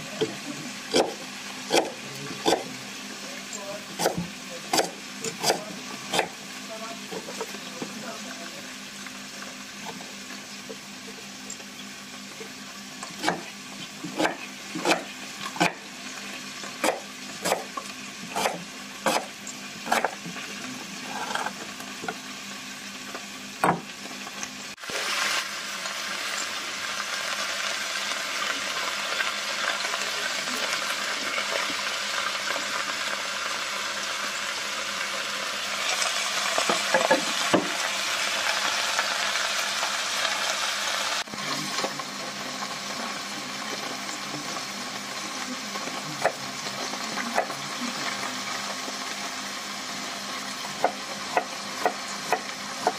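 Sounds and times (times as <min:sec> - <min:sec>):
vegetables sizzling in pot: 0:00.0 - 0:52.9
knife chopping on wooden board: 0:01.0 - 0:02.6, 0:13.2 - 0:15.8, 0:18.3 - 0:19.3.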